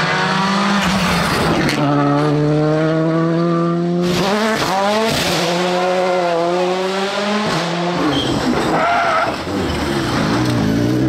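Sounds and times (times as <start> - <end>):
rally car engine at high revs: 0.0 - 11.0
tyre squeal: 8.0 - 10.0.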